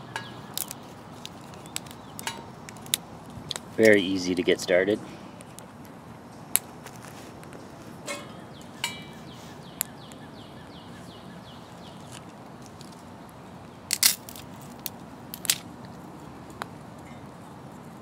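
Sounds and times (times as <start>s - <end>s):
twigs crackling in wood stove: 0.0s - 4.8s, 11.6s - 17.9s.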